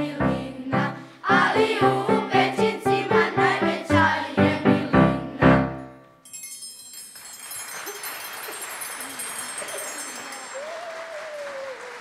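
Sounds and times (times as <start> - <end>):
children's choir singing: 0.0 - 5.8
instrumental accompaniment: 0.0 - 7.3.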